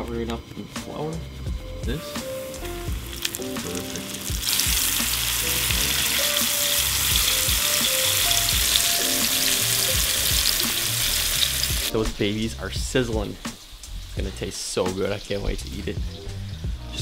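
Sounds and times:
fish sizzling in oil: 0:02.1 - 0:11.9.

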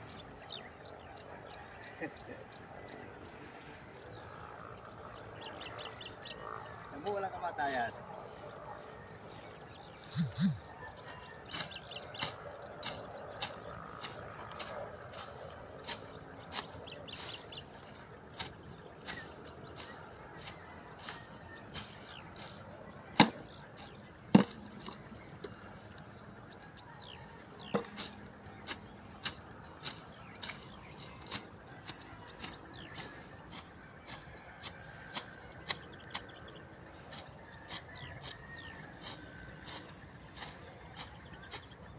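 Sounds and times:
insects chirring: 0:00.0 - 0:41.9
sickle slashing through grass: 0:10.0 - 0:10.6, 0:11.5 - 0:17.6, 0:18.3 - 0:24.6, 0:27.8 - 0:36.4.

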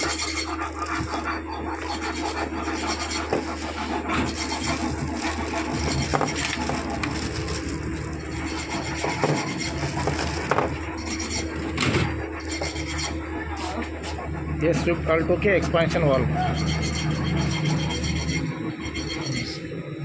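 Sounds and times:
plastic bags crinkling: 0:04.7 - 0:08.5, 0:09.7 - 0:10.8.

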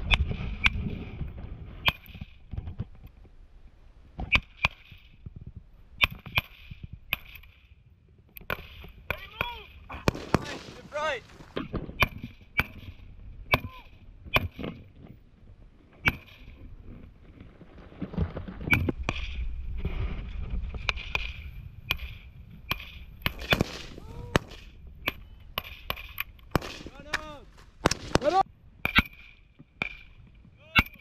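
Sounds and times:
low rumbling noise: 0:09.8 - 0:28.9
rifle shots: 0:09.9 - 0:13.0, 0:21.9 - 0:30.1.

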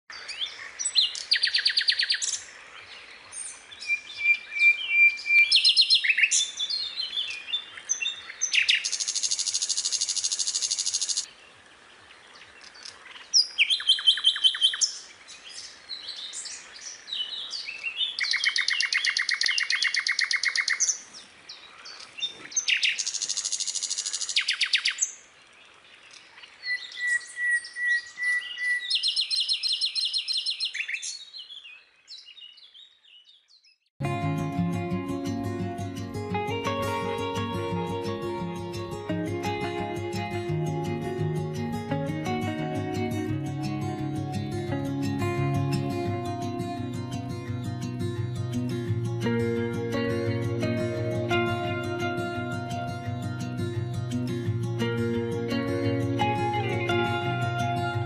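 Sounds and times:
bird chirping: 0:00.1 - 0:11.4, 0:12.3 - 0:33.9.

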